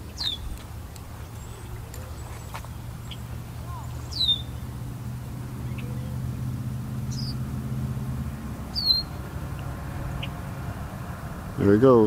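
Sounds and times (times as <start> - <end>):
bird chirps: 0.0 - 0.7, 1.3 - 4.8, 5.6 - 6.3, 7.0 - 7.5, 8.7 - 9.3, 10.1 - 10.4
engine humming: 0.0 - 12.0.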